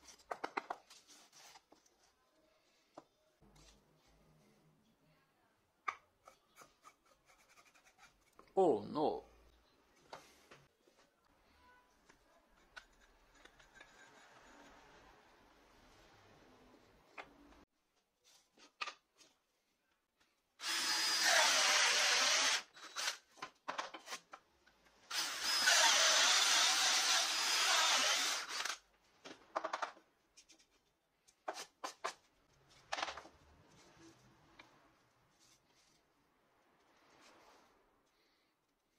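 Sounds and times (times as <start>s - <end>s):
power drill cutting plywood: 20.6s - 23.2s, 25.1s - 28.8s.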